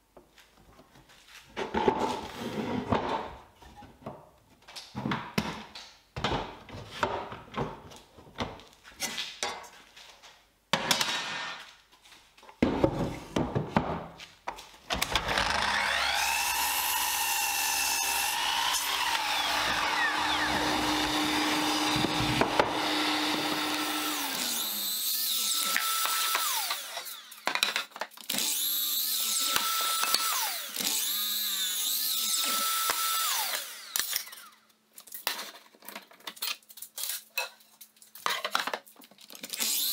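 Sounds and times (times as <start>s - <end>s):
knocks and clicks handling wood: 4.0s - 9.7s, 12.4s - 15.2s
miter saw motor whining: 15.0s - 27.4s.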